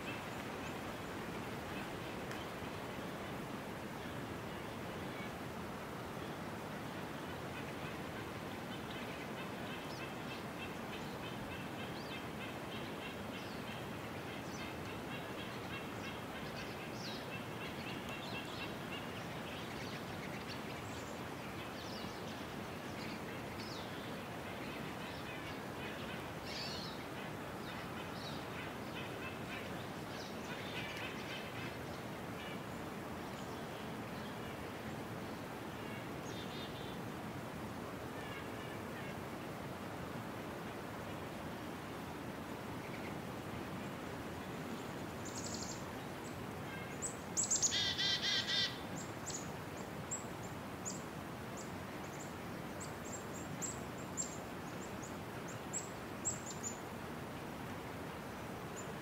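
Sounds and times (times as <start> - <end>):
steady hiss: 0.0 - 59.0
small birds chirping: 44.8 - 45.9, 47.0 - 51.0.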